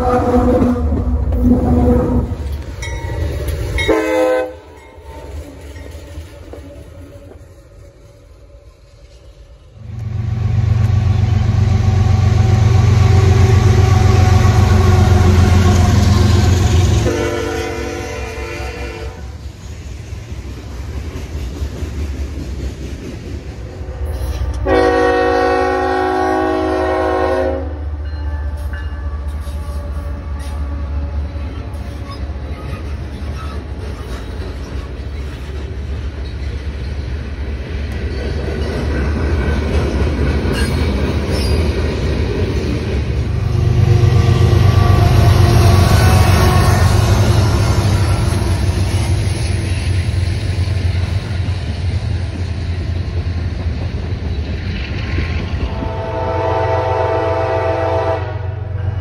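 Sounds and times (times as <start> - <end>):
locomotive horn blast: 0.0 - 2.5, 3.8 - 4.8, 11.0 - 19.4, 24.5 - 31.6, 43.4 - 48.6, 55.7 - 59.0
freight train rumbling past: 0.0 - 59.0.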